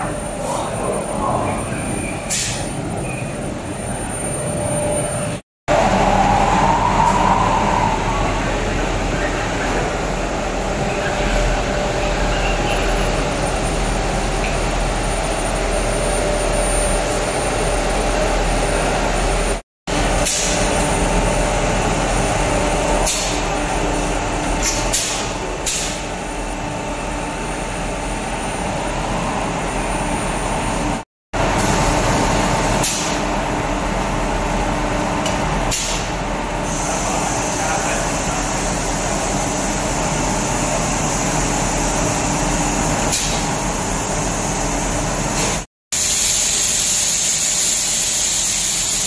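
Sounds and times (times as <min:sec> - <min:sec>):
loud machine noise: 0:00.0 - 0:49.0
pneumatic air release hisses: 0:02.3 - 0:02.7, 0:20.2 - 0:20.6, 0:23.0 - 0:23.4, 0:24.6 - 0:26.0, 0:32.8 - 0:33.2, 0:35.7 - 0:36.1, 0:43.1 - 0:43.5, 0:45.4 - 0:49.0.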